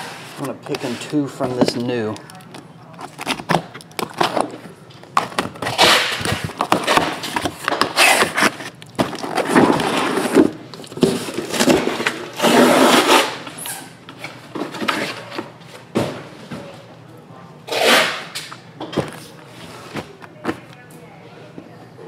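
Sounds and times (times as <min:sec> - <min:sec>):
tape and cardboard tearing: 0:03.0 - 0:04.6, 0:05.2 - 0:13.9, 0:17.7 - 0:18.6
boxes sliding and handled: 0:05.6 - 0:13.3
box cutter cutting cardboard: 0:05.6 - 0:13.4, 0:17.7 - 0:18.3.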